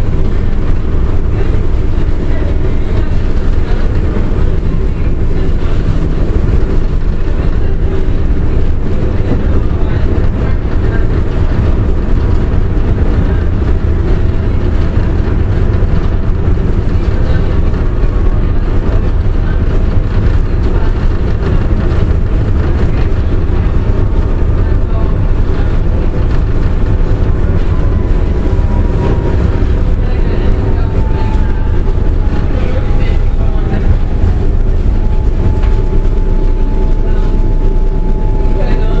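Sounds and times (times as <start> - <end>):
tram rumbling on track: 0.0 - 39.0.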